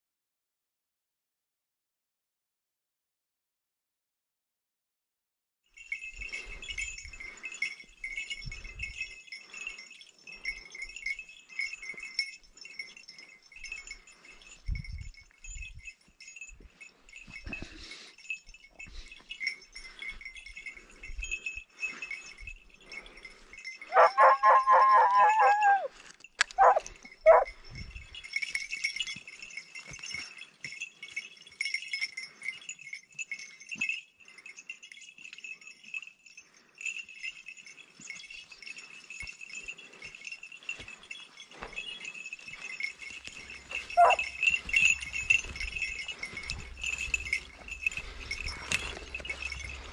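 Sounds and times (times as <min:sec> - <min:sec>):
steady high jingling: 0:05.7 - 0:49.9
hound baying: 0:23.8 - 0:27.6, 0:43.4 - 0:49.9
hound yelps: 0:23.9 - 0:26.0, 0:26.6 - 0:27.5, 0:43.9 - 0:44.5.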